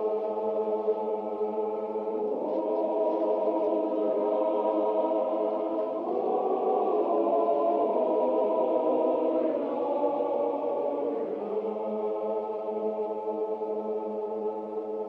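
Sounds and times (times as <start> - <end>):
solemn orchestral chords with choir: 0.0 - 15.0.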